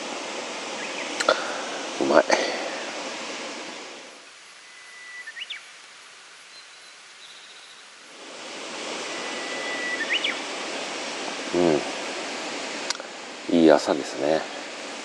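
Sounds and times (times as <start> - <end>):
rushing outdoor noise: 0.0 - 15.0
songbird singing: 0.7 - 2.0, 3.6 - 8.1, 8.9 - 10.8.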